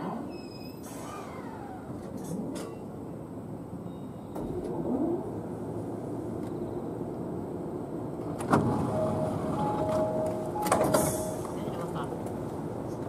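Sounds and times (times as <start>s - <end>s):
electric train humming: 1.2s - 13.0s
train doors clunking: 3.9s - 6.6s, 8.0s - 13.0s.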